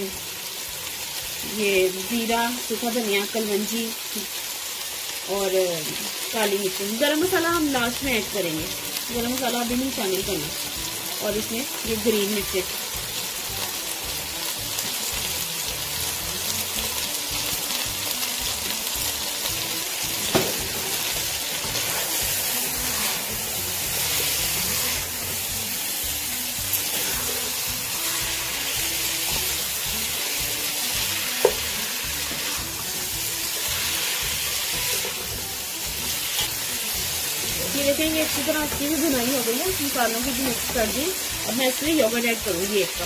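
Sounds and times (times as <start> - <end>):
chicken sizzling in hot oil: 0.0 - 43.0
utensil knocking against pan: 20.3 - 20.8.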